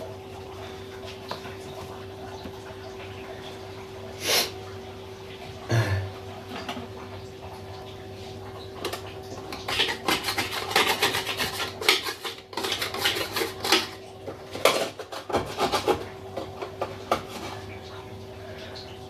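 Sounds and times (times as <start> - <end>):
dishes and utensils clattering: 8.8 - 17.6.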